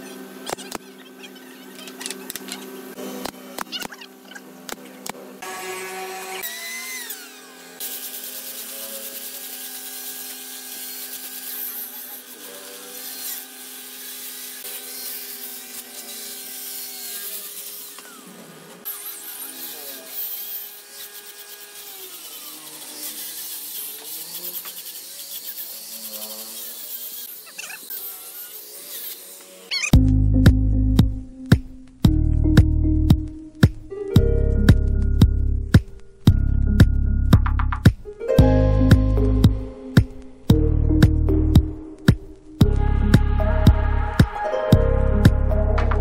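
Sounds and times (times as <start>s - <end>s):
angle grinder motor whine: 0.0s - 30.0s
sanding disc hissing on wood: 6.7s - 29.8s.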